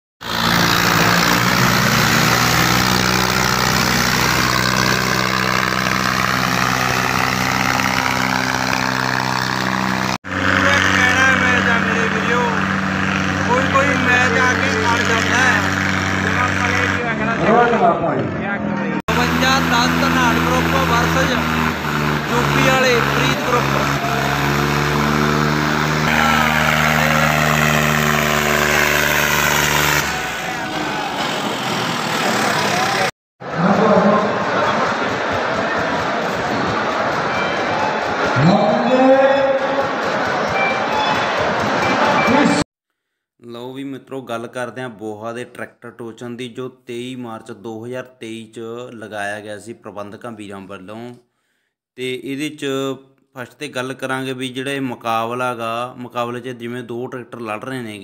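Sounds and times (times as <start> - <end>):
tractor diesel engines at high revs: 0.2 - 42.7.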